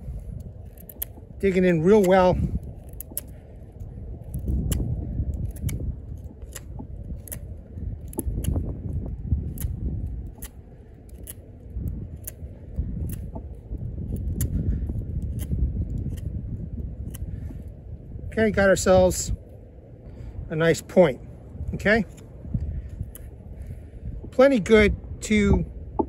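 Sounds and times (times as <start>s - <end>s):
knife carving wood: 0.0s - 8.6s, 9.4s - 11.4s, 12.1s - 13.4s, 15.1s - 16.3s, 17.0s - 17.7s.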